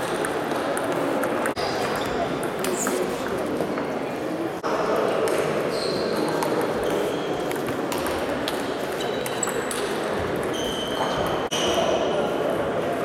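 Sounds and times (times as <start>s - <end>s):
murmur of voices: 0.0s - 13.0s.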